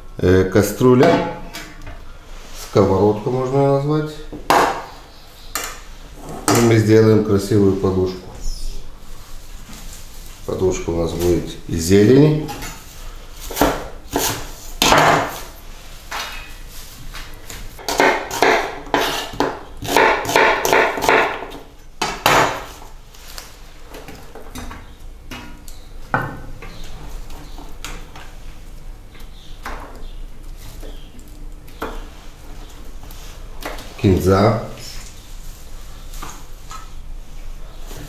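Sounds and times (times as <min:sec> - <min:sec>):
knife chopping on wooden board: 0:13.5 - 0:15.4, 0:17.8 - 0:22.7.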